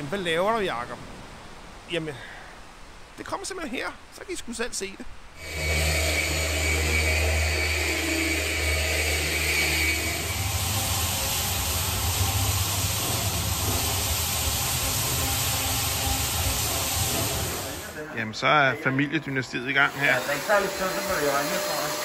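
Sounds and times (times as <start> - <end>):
sanding disc grinding wood: 5.4 - 17.9, 19.8 - 22.0
floor sanding machine drone: 5.4 - 18.0, 19.6 - 22.0.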